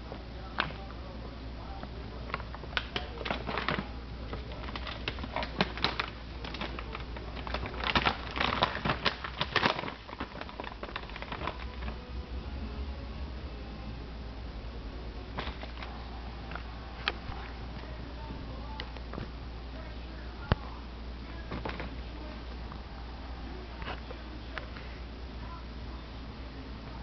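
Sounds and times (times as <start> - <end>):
plastic bag crinkling: 2.1 - 12.0, 15.3 - 18.0.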